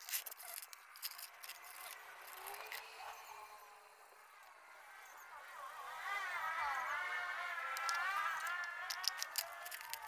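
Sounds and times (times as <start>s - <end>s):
hands handling metal parts: 0.0s - 2.9s, 7.7s - 10.0s.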